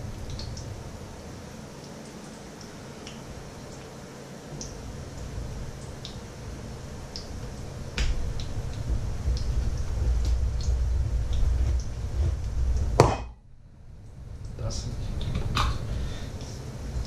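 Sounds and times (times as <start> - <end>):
hot oil popping: 7.1 - 13.4
low rumble: 8.1 - 16.0
sharp knock: 13.0 - 13.4.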